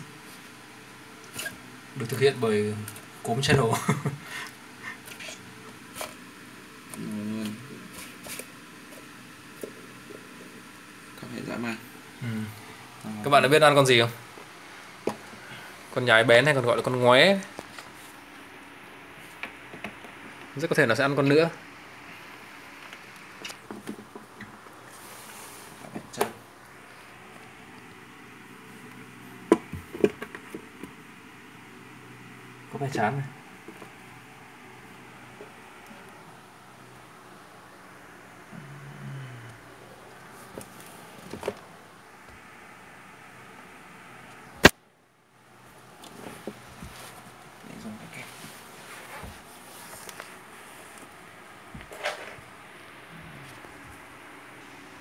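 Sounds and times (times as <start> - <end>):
faint room noise: 0.0 - 55.0.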